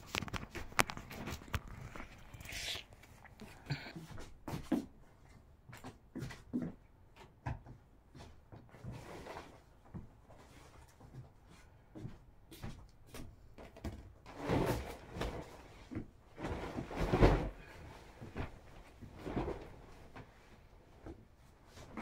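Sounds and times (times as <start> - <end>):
bedding swishing and rustling: 14.4 - 22.0.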